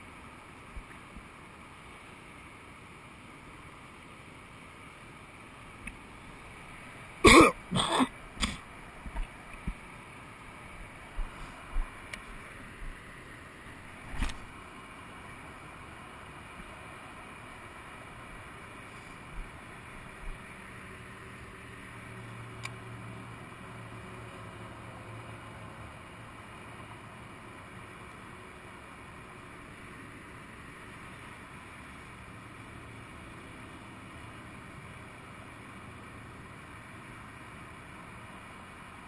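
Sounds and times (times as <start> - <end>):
distant vehicle engines hum: 0.0 - 39.0
light click: 22.2 - 22.8.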